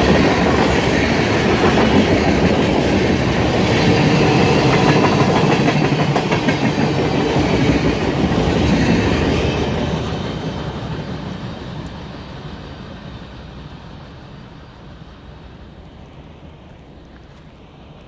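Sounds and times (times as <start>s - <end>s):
freight train wheels rumbling and clattering: 0.0s - 14.3s.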